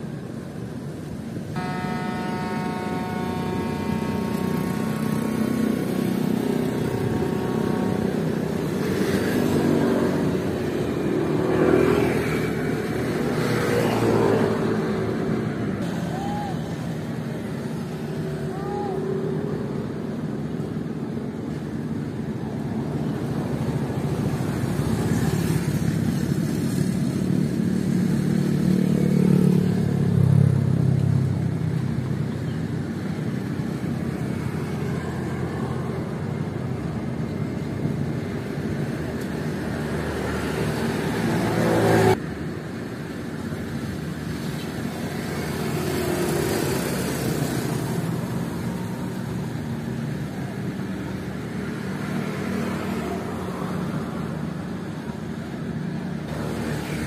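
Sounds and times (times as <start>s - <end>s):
cars and motorcycles running: 0.0s - 57.0s.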